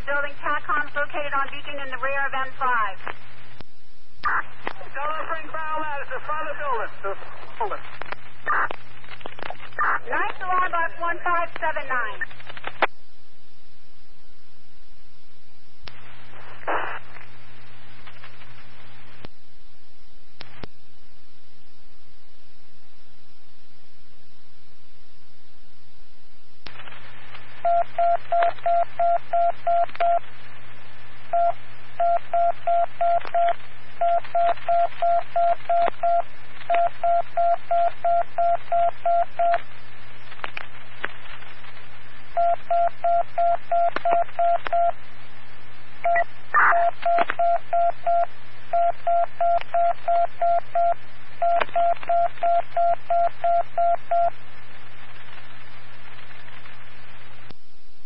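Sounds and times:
radio crackle: 0:00.0 - 0:13.0, 0:15.8 - 0:19.4, 0:20.4 - 0:20.8, 0:26.6 - 0:48.7, 0:49.3 - 0:57.6
radio hum and hiss: 0:00.0 - 0:58.0
radio alarm beeps: 0:46.1 - 0:54.3.

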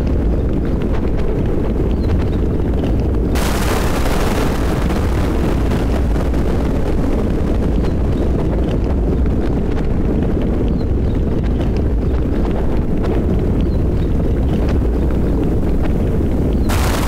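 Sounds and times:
scattered raindrops: 0:00.8 - 0:17.0
deep rumble of thunder: 0:01.3 - 0:17.0
sudden thunderclap: 0:03.4 - 0:08.8, 0:16.7 - 0:17.0.

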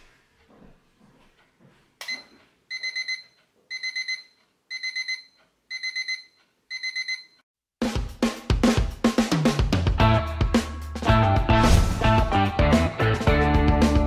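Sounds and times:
alarm clock beeping: 0:02.1 - 0:07.4.

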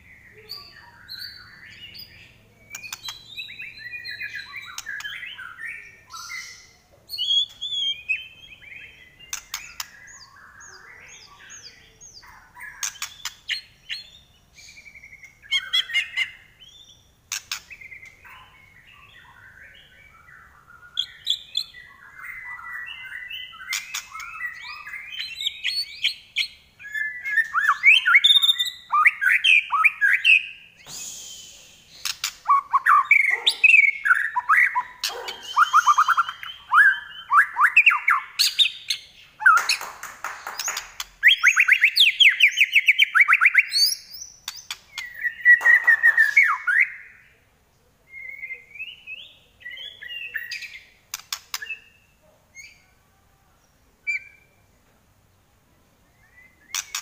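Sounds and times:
bird singing whistled phrases: 0:00.1 - 0:17.0, 0:26.8 - 0:39.8, 0:40.6 - 0:47.3, 0:48.1 - 0:50.9, 0:56.2 - 0:57.0
sharp bird clicks: 0:02.7 - 0:05.4, 0:09.2 - 0:10.2, 0:12.6 - 0:14.0, 0:17.3 - 0:18.4, 0:23.6 - 0:24.6, 0:30.8 - 0:33.8, 0:39.4 - 0:46.6, 0:51.1 - 0:51.8, 0:56.7 - 0:57.0.

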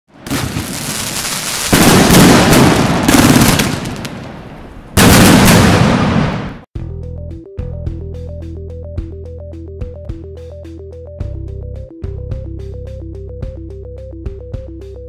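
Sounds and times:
fireworks crackling: 0:00.1 - 0:06.5
fireworks bursting: 0:00.1 - 0:06.7.

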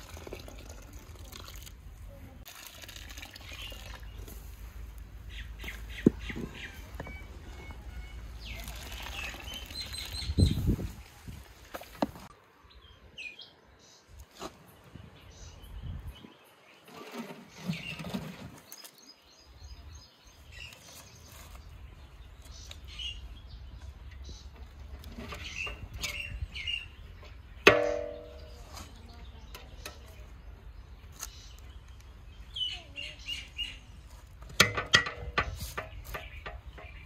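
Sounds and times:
small birds chirping: 0:03.2 - 0:34.5, 0:35.4 - 0:37.0
metal skimmer clanking on pot: 0:27.7 - 0:28.6, 0:34.6 - 0:37.0.

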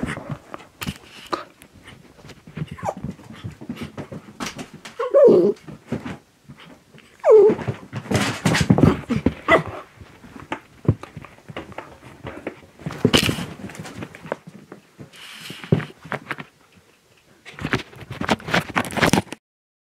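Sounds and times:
paws scrabbling on a rug: 0:00.0 - 0:19.2
dog whining: 0:02.6 - 0:03.0, 0:05.0 - 0:05.6, 0:07.2 - 0:07.8.

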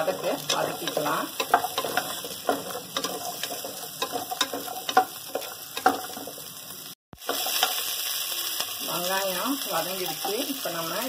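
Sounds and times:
spatula scraping and tapping pot: 0:00.0 - 0:06.4
onions sizzling in hot oil: 0:00.0 - 0:11.0.

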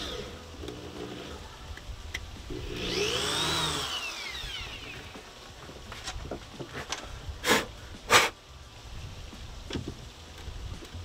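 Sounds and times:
cordless drill boring: 0:00.0 - 0:01.3, 0:02.5 - 0:05.2.

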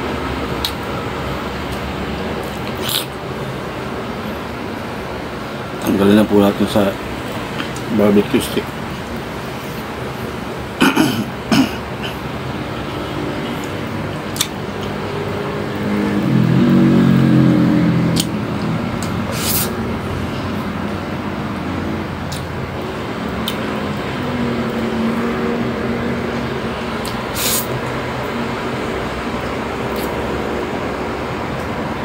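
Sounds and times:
low hum of passing vehicle: 0:00.0 - 0:32.0
mouth eating noises: 0:01.7 - 0:03.2, 0:13.6 - 0:15.0, 0:18.1 - 0:19.7, 0:22.3 - 0:22.6, 0:26.9 - 0:27.7, 0:29.9 - 0:30.3
sharp clicks of sticks: 0:13.6 - 0:14.9.

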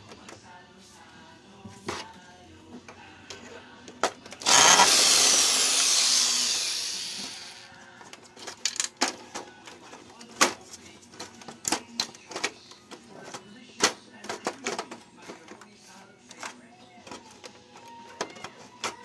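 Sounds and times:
cordless drill running: 0:04.4 - 0:07.7
plastic parts clicking: 0:08.0 - 0:15.7, 0:16.3 - 0:19.0.

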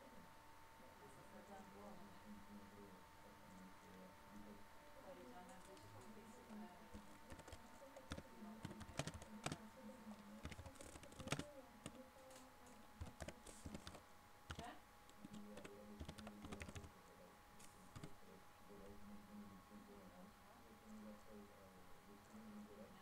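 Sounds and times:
faint keyboard typing: 0:05.4 - 0:17.0, 0:17.6 - 0:18.2.

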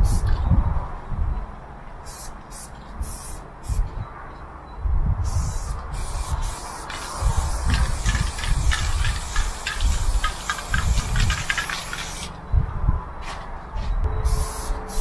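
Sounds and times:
spray paint can hissing: 0:00.0 - 0:00.2, 0:02.0 - 0:03.8, 0:05.2 - 0:12.3, 0:14.3 - 0:15.0.

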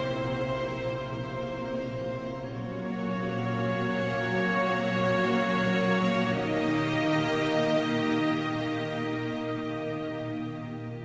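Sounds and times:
soundtrack music with held chords: 0:00.0 - 0:11.0.

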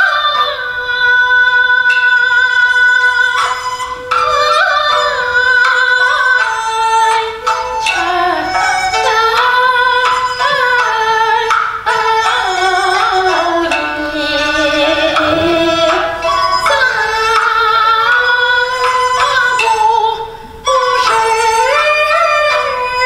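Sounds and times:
instrumental accompaniment: 0:00.0 - 0:23.0
woman singing opera: 0:07.8 - 0:11.3, 0:12.2 - 0:23.0.

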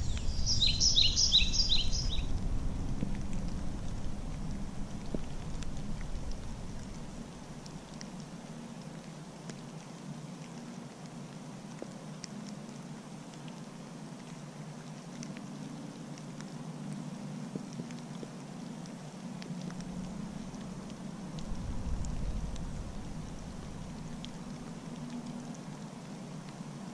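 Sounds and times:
low rumble: 0:00.0 - 0:07.9, 0:19.7 - 0:25.5
raindrops ticking on water: 0:00.0 - 0:26.9.

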